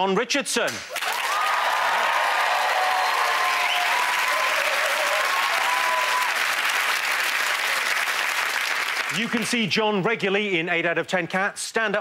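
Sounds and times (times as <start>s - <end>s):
audience applauding: 0.9s - 9.6s.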